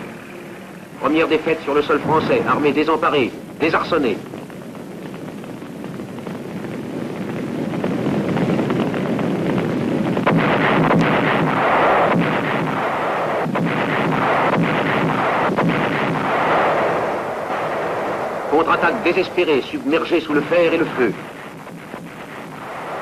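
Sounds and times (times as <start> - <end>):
rumbling artillery and gunfire: 0.0 - 23.0
sharp gunshots: 9.4 - 23.0.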